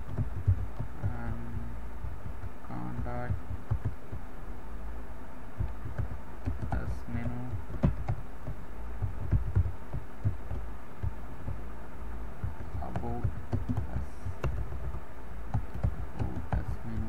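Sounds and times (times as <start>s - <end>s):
steady low hum: 0.0s - 17.0s
keyboard key clicks: 2.0s - 4.2s, 5.6s - 11.6s, 12.4s - 17.0s.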